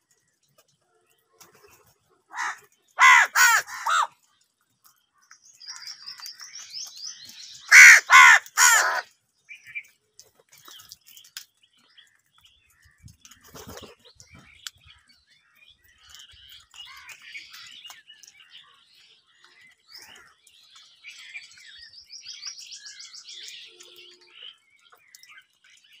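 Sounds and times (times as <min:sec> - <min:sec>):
crows cawing: 0:02.3 - 0:04.1, 0:07.7 - 0:09.1.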